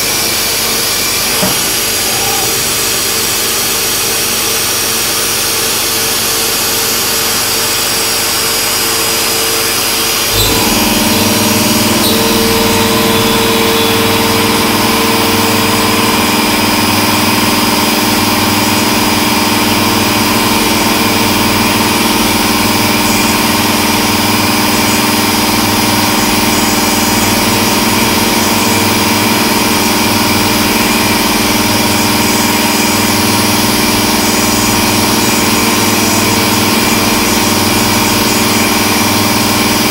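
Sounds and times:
milling machine whine: 0.0 - 39.9
knock: 1.4 - 1.8.

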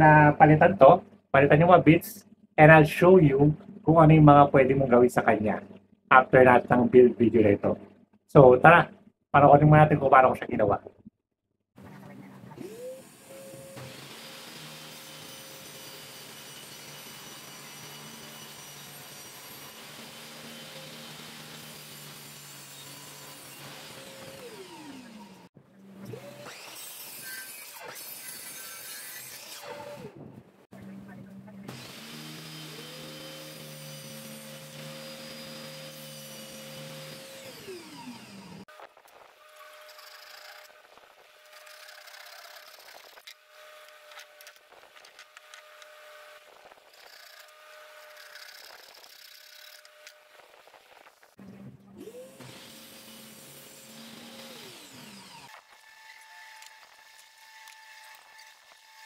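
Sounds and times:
miter saw cutting plywood: 12.5 - 30.2, 31.6 - 59.0
table saw spinning down: 31.8 - 38.7.

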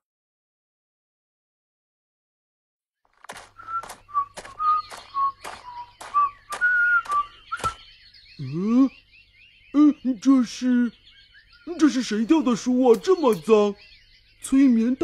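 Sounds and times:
footstep clicks: 3.1 - 7.8.

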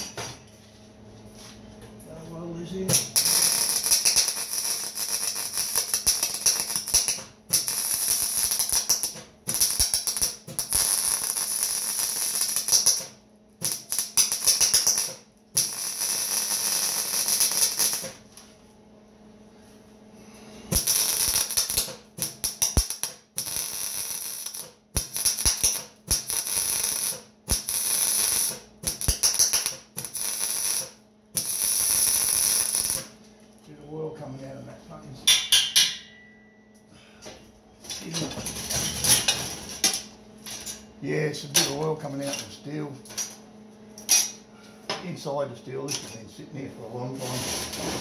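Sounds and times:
welding arc crackling: 2.5 - 18.3, 20.7 - 33.2.

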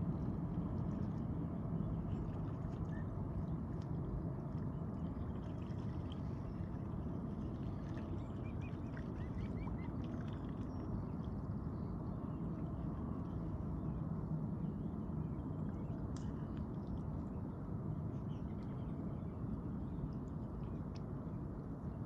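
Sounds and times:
steady low rumble: 0.0 - 22.0
swans dabbling at water surface: 3.7 - 11.6.

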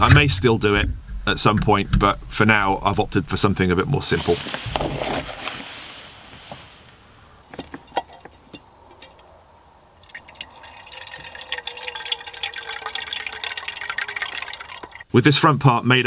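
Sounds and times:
water running into kettle: 10.0 - 15.0.

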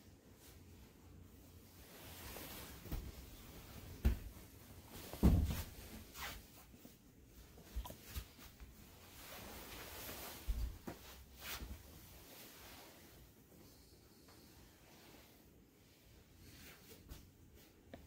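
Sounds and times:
soft footsteps on mats: 2.2 - 12.0
thumps of kneeling on mats: 5.0 - 5.8.

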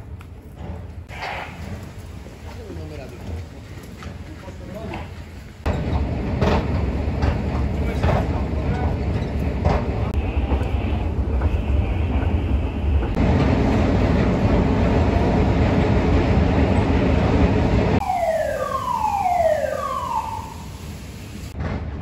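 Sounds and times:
alarm falling tones: 18.0 - 21.2.

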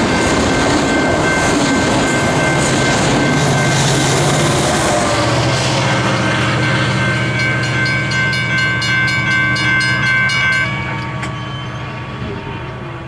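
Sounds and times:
train rumble: 0.0 - 13.0
high wheel squeal: 10.7 - 13.0.

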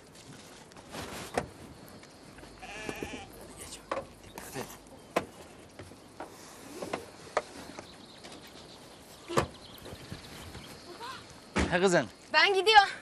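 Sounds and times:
steps on gravel road: 0.0 - 12.8.

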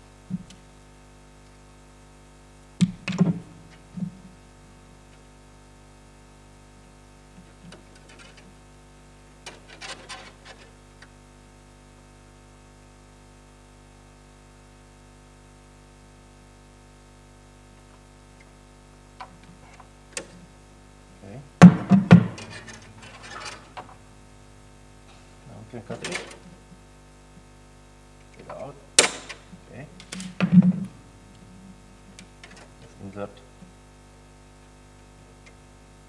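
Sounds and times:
clicks and rattles of parts: 7.6 - 8.5, 9.4 - 10.7, 21.9 - 24.0, 25.9 - 26.5, 28.4 - 30.7, 32.2 - 32.7
knocks and scrapes on plastic: 30.4 - 31.0.

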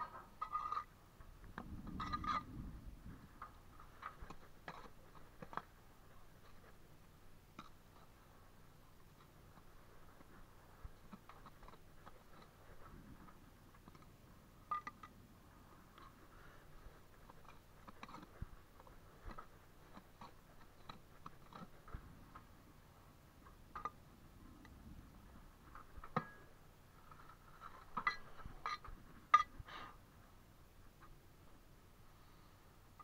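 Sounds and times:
bricks being handled: 3.4 - 6.9, 7.5 - 15.2, 15.8 - 22.5
trowel scraping and tapping mortar: 4.0 - 5.8, 17.1 - 22.5.

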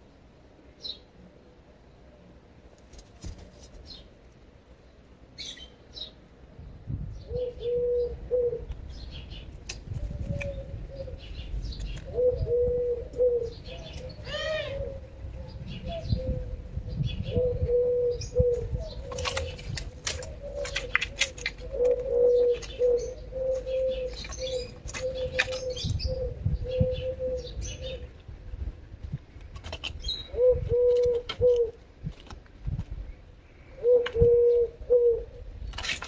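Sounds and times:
small birds chirping: 3.4 - 28.3, 29.1 - 31.8
dove cooing: 7.3 - 8.7, 10.0 - 28.2, 30.3 - 31.8, 33.6 - 35.5.

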